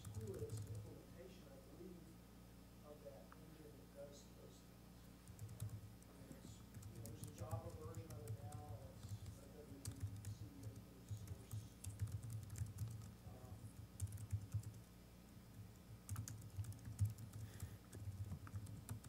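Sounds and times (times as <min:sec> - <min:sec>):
laptop keyboard typing: 0:00.0 - 0:00.9, 0:05.2 - 0:14.9, 0:15.5 - 0:19.0.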